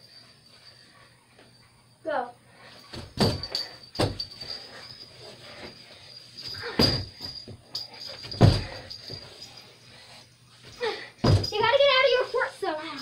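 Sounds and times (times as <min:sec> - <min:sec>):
dull thumps and knocks: 0:08.3 - 0:08.8, 0:11.2 - 0:11.8.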